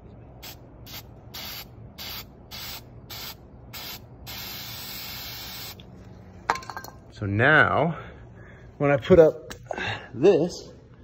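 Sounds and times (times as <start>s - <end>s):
aerosol spray can hissing: 0.9s - 5.8s.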